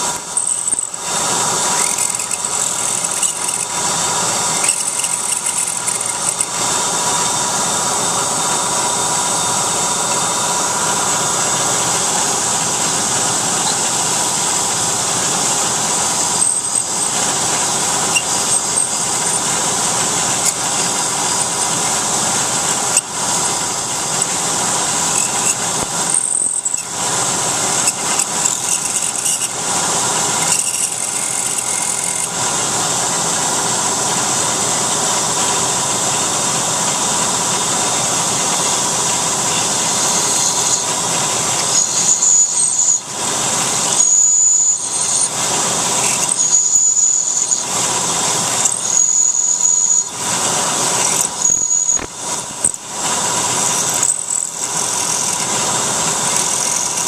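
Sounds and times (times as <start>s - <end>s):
drill cutting and coolant hiss: 0.0s - 57.0s
mill spindle whine: 0.0s - 57.0s.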